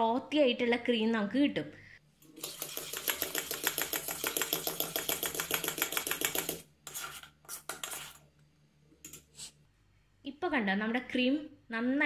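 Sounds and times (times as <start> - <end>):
spoon scraping pot: 2.4 - 8.3.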